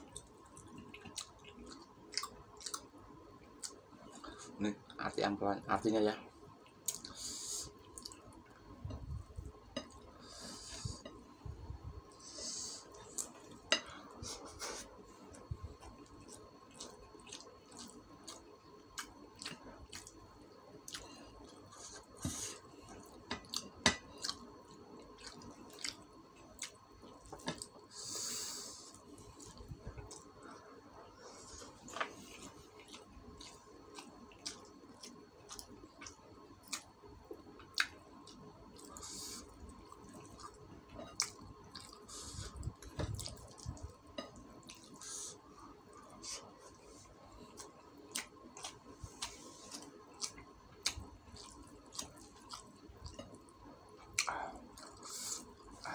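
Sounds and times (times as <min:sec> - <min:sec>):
wet chewing and lip smacks: 0:37.6 - 0:39.0, 0:47.4 - 0:53.5.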